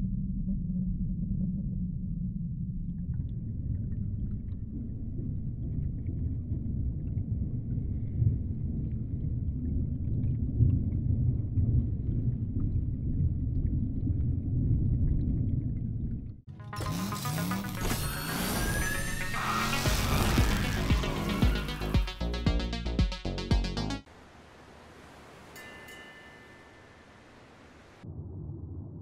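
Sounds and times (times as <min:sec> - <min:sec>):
deep underwater rumble: 0:00.0 - 0:16.5, 0:28.0 - 0:29.0.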